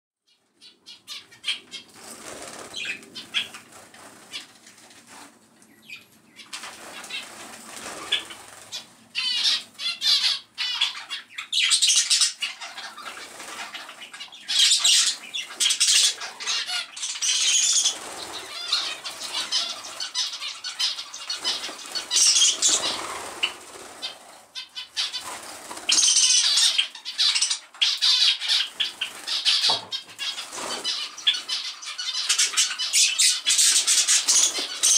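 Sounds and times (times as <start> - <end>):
finches flapping wings: 2.0 - 5.3, 6.6 - 8.8, 21.4 - 24.4.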